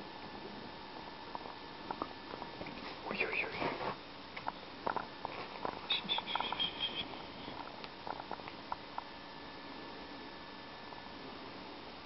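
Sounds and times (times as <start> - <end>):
rustling while stroking cat: 2.4 - 4.1.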